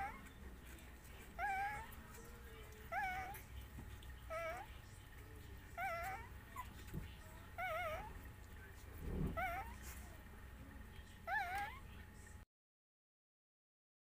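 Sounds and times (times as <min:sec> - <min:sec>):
puppy whimpering: 0:00.0 - 0:10.2, 0:11.2 - 0:11.9.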